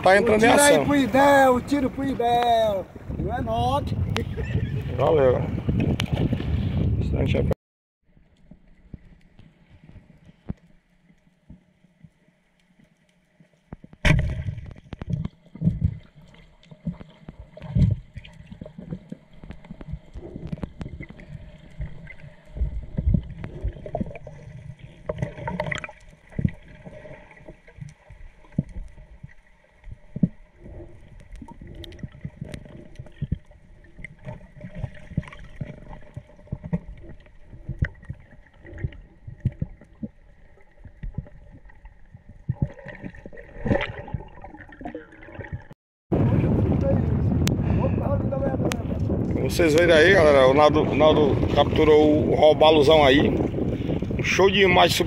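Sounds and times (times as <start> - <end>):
water gurgling and sloshing: 0.0 - 55.0.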